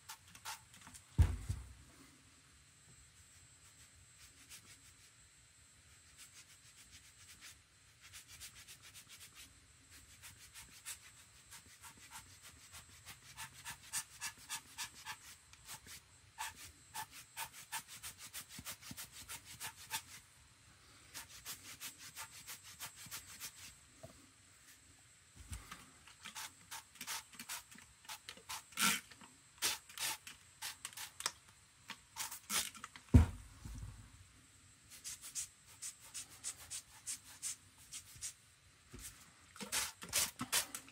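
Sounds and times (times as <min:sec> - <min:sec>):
deep thump: 0:01.2 - 0:01.7, 0:33.1 - 0:34.0
spray bottle squirts: 0:39.6 - 0:40.8.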